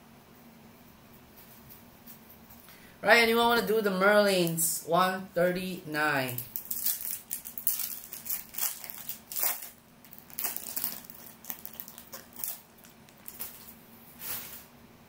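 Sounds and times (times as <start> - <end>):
foil wrapper crinkling: 6.3 - 14.7.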